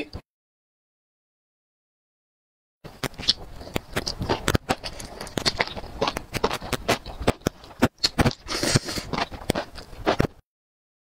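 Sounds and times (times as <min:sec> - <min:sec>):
chewing smacks and clicks: 0:03.0 - 0:10.3
wet slurps: 0:03.2 - 0:10.2.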